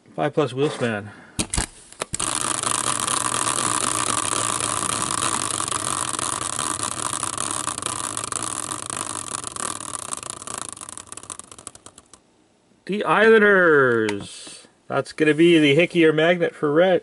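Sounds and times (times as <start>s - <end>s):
prize wheel rattling: 2.1s - 12.2s.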